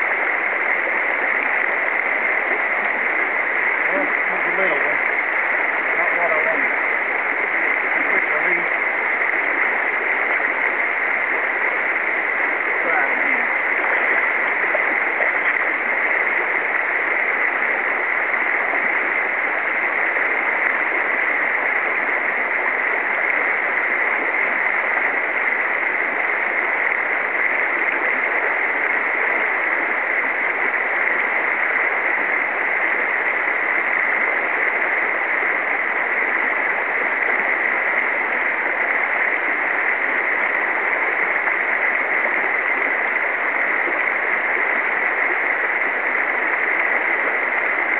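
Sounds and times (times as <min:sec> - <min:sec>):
river rushing over riffle: 0:00.0 - 0:47.9.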